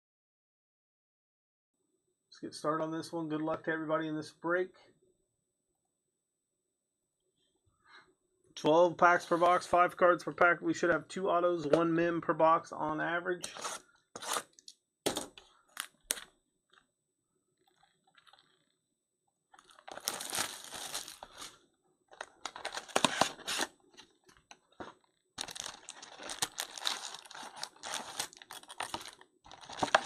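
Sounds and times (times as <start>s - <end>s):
plastic wrap crinkling and tearing: 19.5s - 21.6s, 22.2s - 23.7s, 25.4s - 30.0s.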